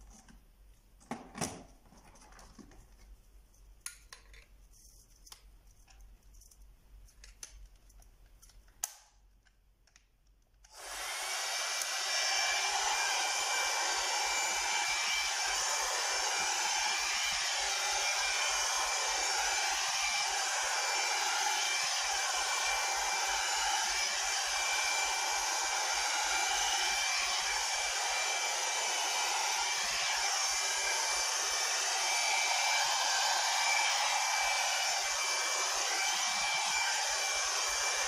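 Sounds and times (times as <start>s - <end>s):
hot air brush blowing with motor whine: 10.7s - 38.0s.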